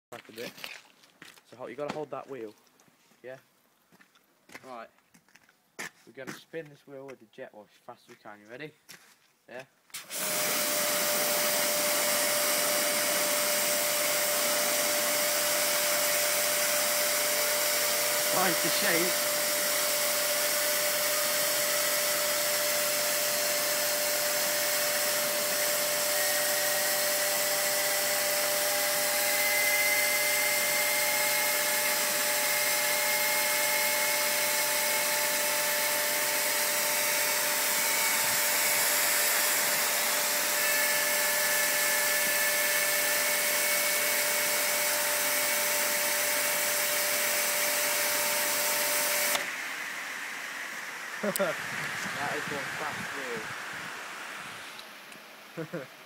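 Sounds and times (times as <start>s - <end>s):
pressure washer spraying: 10.0s - 44.8s
spinning wheel whine: 10.1s - 54.7s.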